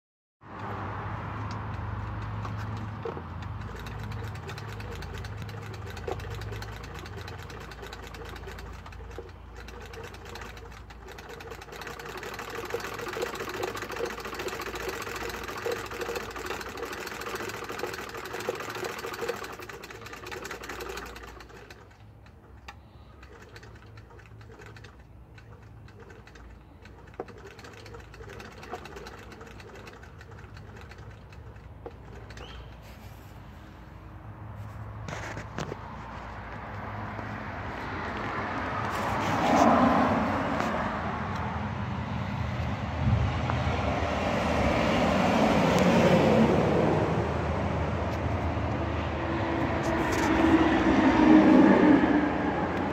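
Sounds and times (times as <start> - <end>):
hand-cranked sewing machine clattering: 1.5 - 33.1.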